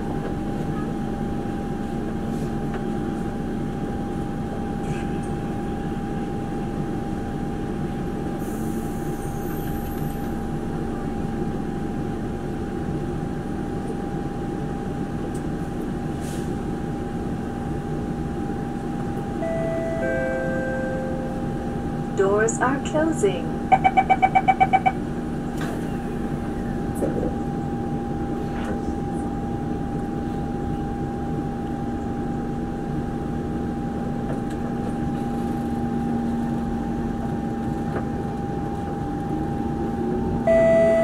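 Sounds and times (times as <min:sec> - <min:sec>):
train carriage hum and rumble: 0:00.0 - 0:41.0
electronic door chime: 0:40.5 - 0:41.0.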